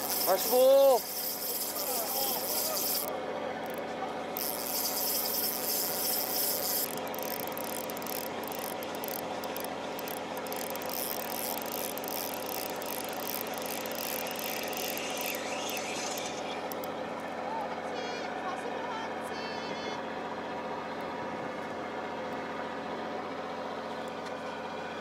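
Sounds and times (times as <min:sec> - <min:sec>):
fishing reel cranking: 0:00.0 - 0:03.8, 0:04.4 - 0:17.0
boat engine drone: 0:00.0 - 0:25.0.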